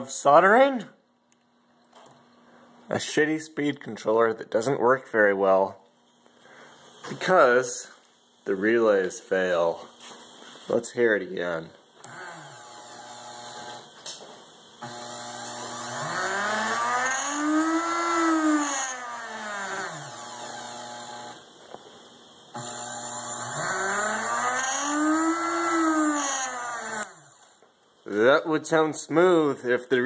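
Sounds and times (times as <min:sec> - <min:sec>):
drill motor whine rising and falling: 0:12.0 - 0:27.7.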